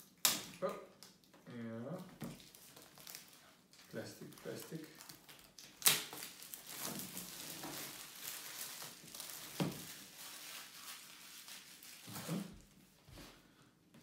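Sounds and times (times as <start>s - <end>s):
plastic film crinkling: 0.0s - 12.8s.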